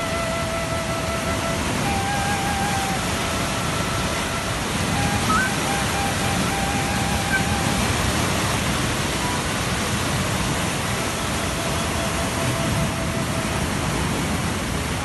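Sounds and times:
faint whistle-like tones: 0.0 - 7.9
river rapids rushing: 0.0 - 15.0.

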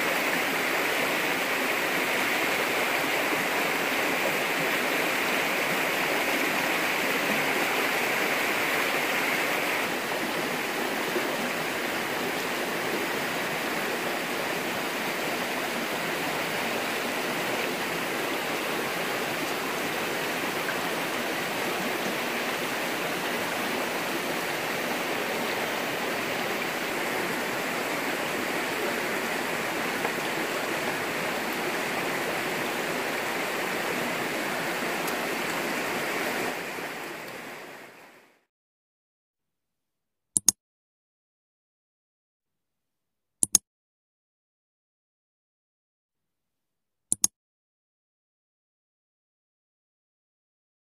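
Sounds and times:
stream flowing over rocks: 0.0 - 38.4.

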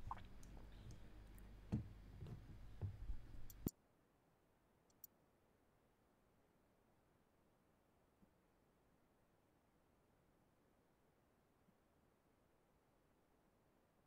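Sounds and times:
faint room noise: 0.0 - 14.0
soft clicks and knocks: 0.1 - 3.7.

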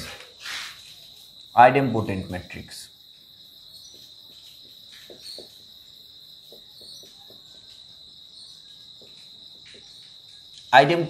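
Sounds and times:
marker squeaking on whiteboard: 3.8 - 5.6.

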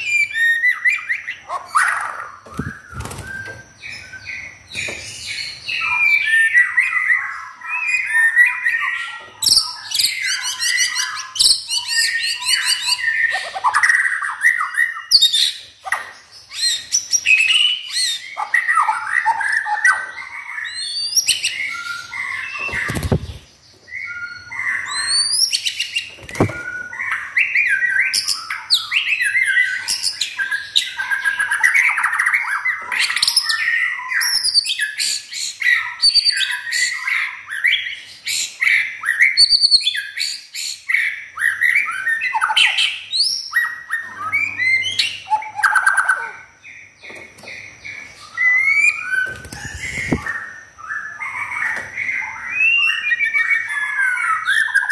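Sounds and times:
bird singing whistles and chirps: 0.0 - 54.9.

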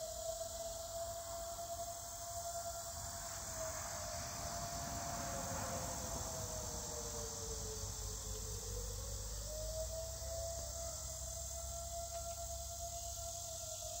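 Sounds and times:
warning siren wavering in pitch: 0.0 - 14.0.

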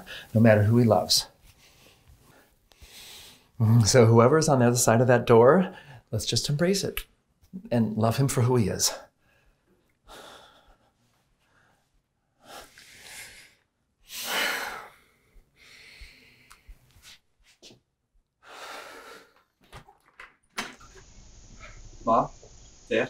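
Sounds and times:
people breathing deeply: 1.5 - 3.6, 9.2 - 17.1, 18.4 - 19.5.

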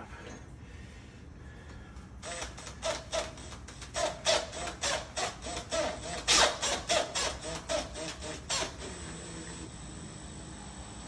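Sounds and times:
cordless drill grinding: 2.2 - 10.1
drill motor whine: 2.2 - 11.0.

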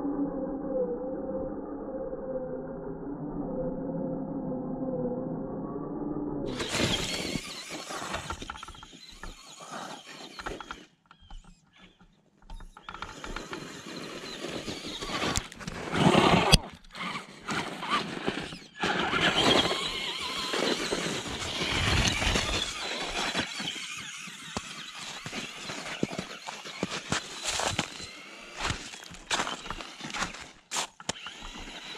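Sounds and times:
tyres churning through snow: 6.5 - 11.5, 12.7 - 31.9
electric motor whining: 6.5 - 31.9.

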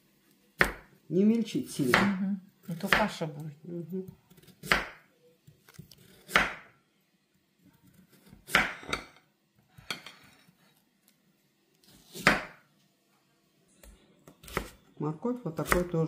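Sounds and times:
knife chopping on wooden board: 0.6 - 0.9, 1.8 - 2.2, 4.4 - 5.0, 6.0 - 6.7, 8.0 - 9.1, 12.1 - 12.6.

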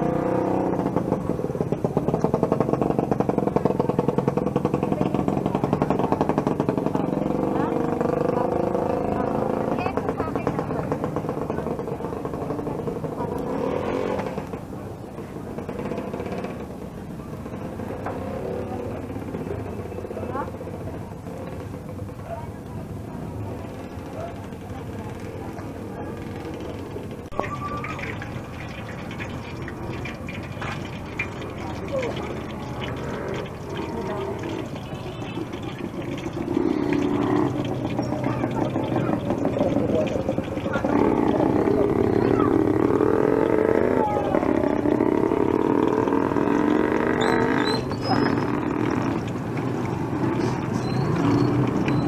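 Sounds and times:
street traffic: 0.0 - 52.0
vehicle engine humming: 0.0 - 52.0
eggs sizzling in hot oil: 27.3 - 41.9.

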